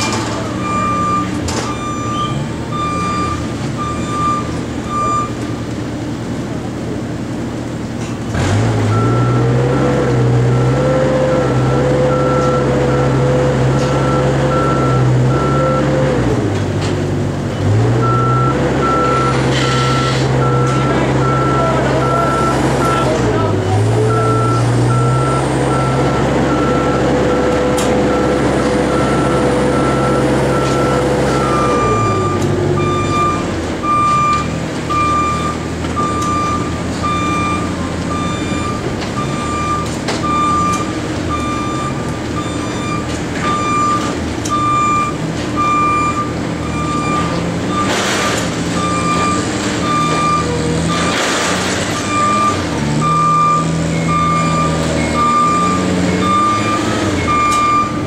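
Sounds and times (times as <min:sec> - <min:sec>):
back-up alarm beeping: 0:00.0 - 0:05.4, 0:18.0 - 0:23.2, 0:24.1 - 0:51.2, 0:52.0 - 0:58.0.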